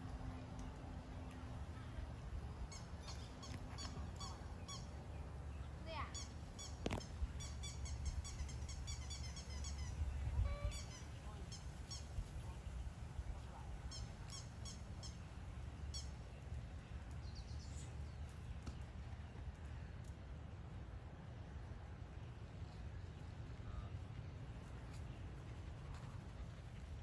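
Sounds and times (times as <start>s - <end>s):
birds calling: 2.6s - 12.7s.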